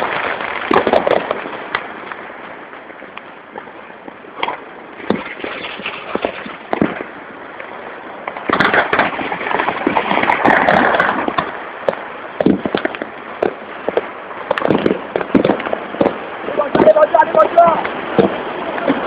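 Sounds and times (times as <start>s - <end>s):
fireworks and firecrackers crackling: 0.0s - 19.0s.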